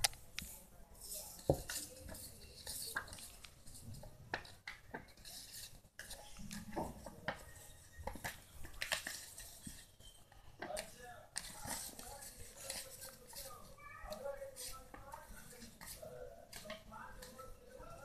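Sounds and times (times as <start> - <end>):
card paper rustling and crackling: 5.0 - 9.9.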